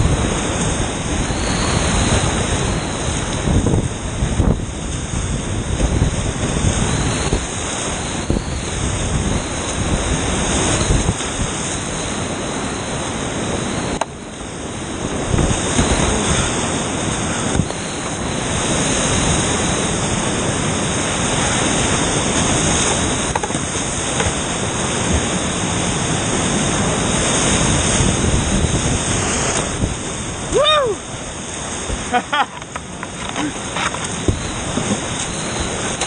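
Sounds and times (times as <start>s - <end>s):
whitewater rushing: 0.0s - 36.0s.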